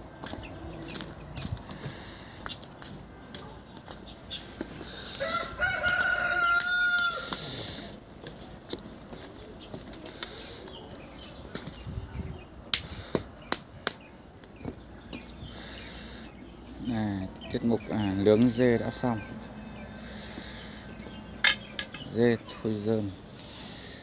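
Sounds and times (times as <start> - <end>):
rooster crowing: 5.1 - 7.5.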